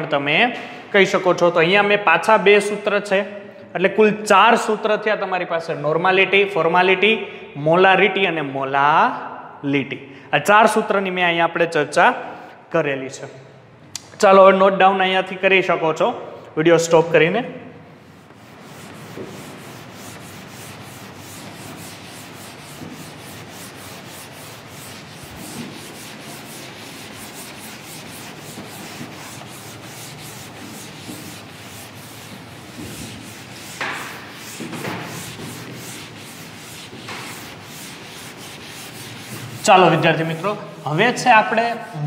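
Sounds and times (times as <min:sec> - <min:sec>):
chalkboard being wiped with duster: 0:17.9 - 0:42.0.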